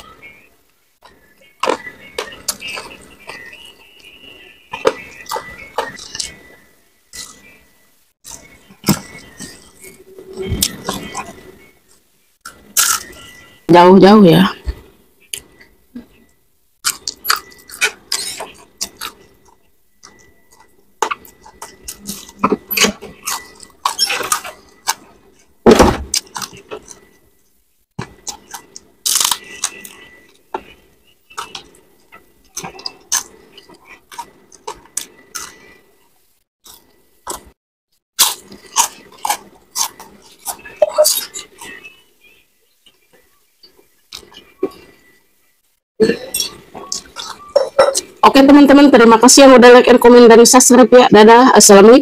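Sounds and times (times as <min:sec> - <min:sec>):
chewing and crunching: 0:04.7 - 0:06.5, 0:08.2 - 0:11.7, 0:16.8 - 0:25.5, 0:26.1 - 0:27.2, 0:28.0 - 0:37.6, 0:38.2 - 0:42.0, 0:42.8 - 0:45.1, 0:46.3 - 0:48.2
heavy thump: 0:25.7 - 0:26.1.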